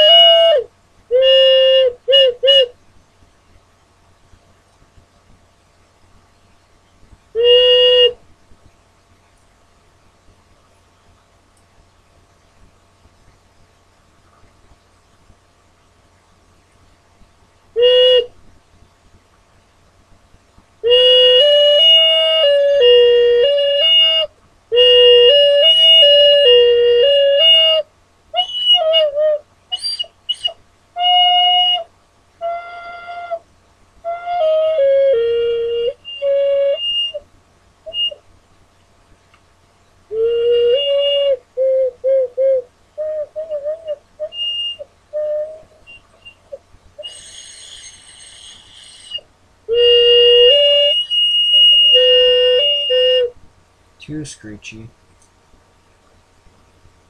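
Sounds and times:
ocarina notes: 0:00.0 - 0:02.8, 0:07.3 - 0:08.2, 0:17.7 - 0:18.4, 0:20.8 - 0:33.4, 0:34.0 - 0:37.2, 0:37.8 - 0:38.3, 0:40.1 - 0:53.4
thin steady whistle: 0:00.0 - 0:02.8, 0:06.0 - 0:08.3, 0:17.7 - 0:19.2, 0:20.8 - 0:38.4, 0:40.0 - 0:53.4
ocarina note runs: 0:40.1 - 0:53.3.

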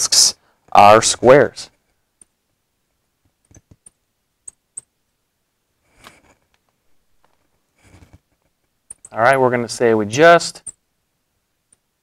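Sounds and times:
soft rustle: 0:05.8 - 0:08.7.

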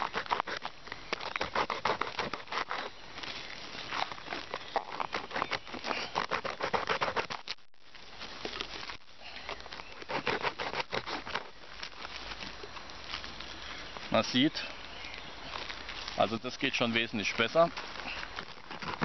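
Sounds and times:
plastic scraper rasping on cane: 0:00.0 - 0:02.9, 0:04.6 - 0:07.5, 0:10.0 - 0:11.5, 0:17.8 - 0:19.0.

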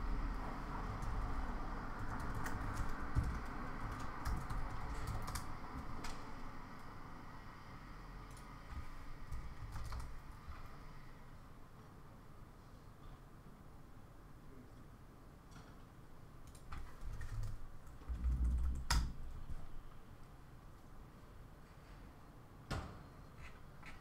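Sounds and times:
steady background noise: 0:00.0 - 0:24.0
keyboard keystrokes: 0:01.9 - 0:06.3, 0:09.3 - 0:10.2.

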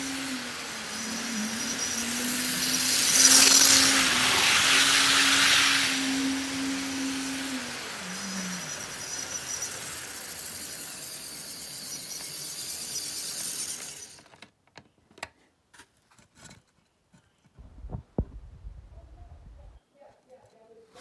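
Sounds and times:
model train whirring: 0:00.0 - 0:14.5.

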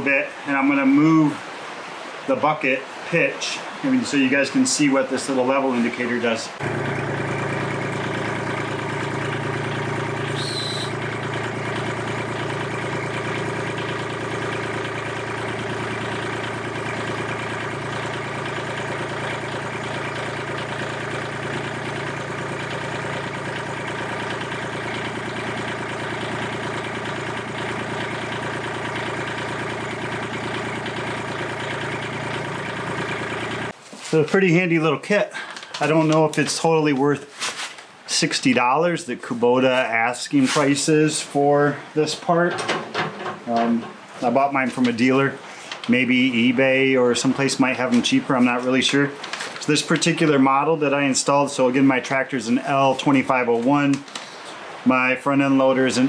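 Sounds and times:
tractor diesel engine idling: 0:06.6 - 0:33.7.

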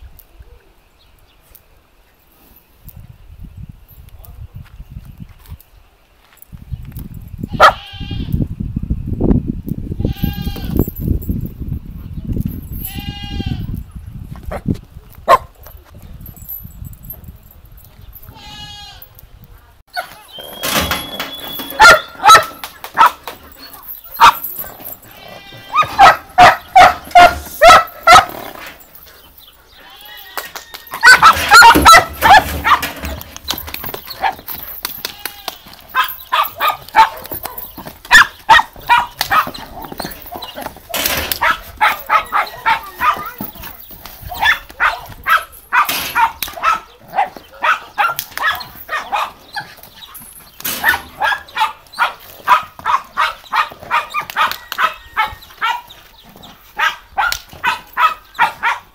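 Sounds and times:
dog barking: 0:07.6 - 0:07.8, 0:15.3 - 0:15.5, 0:21.7 - 0:23.2, 0:25.7 - 0:28.4, 0:31.0 - 0:32.9, 0:36.0 - 0:39.6, 0:41.4 - 0:43.4, 0:44.3 - 0:49.7, 0:50.8 - 0:55.9, 0:56.8 - 0:58.9.

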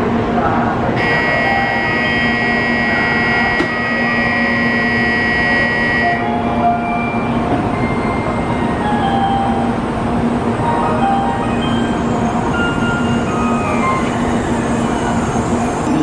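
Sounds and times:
low hum of train: 0:00.0 - 0:16.0
electronic departure bell ringing: 0:01.0 - 0:09.7.

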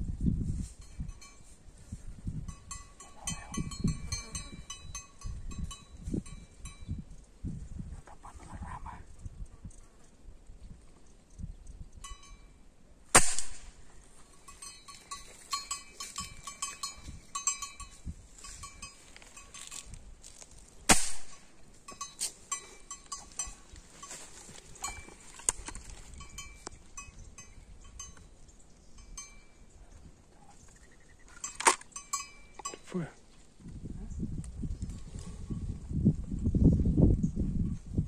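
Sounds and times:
shotgun shots with echo: 0:13.1 - 0:13.8, 0:20.9 - 0:21.4.

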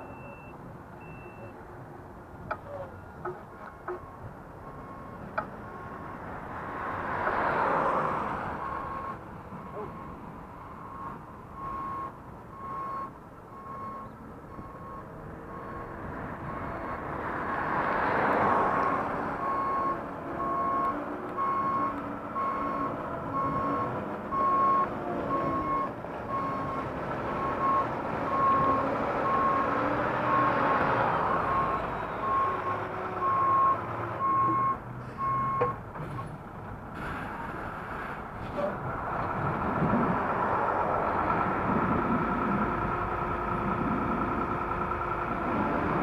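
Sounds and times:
vehicle reversing alarm beeps: 0:00.0 - 0:01.6, 0:02.6 - 0:06.2, 0:08.6 - 0:17.1, 0:18.5 - 0:30.6, 0:31.3 - 0:36.3
vehicle noise: 0:00.0 - 0:46.0.

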